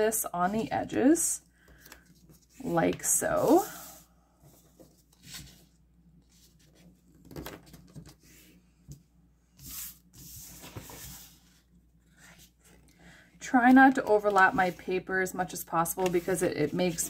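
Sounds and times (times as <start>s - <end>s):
paper rustling and creasing: 1.7s - 8.6s, 9.6s - 12.9s, 13.6s - 17.0s
paper brushing on desk: 9.6s - 11.6s.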